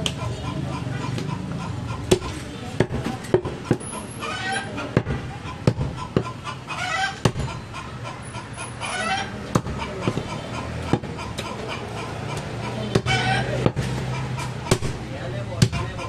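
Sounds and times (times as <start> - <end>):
knife chopping meat on wood: 7.2 - 7.4, 14.7 - 15.0.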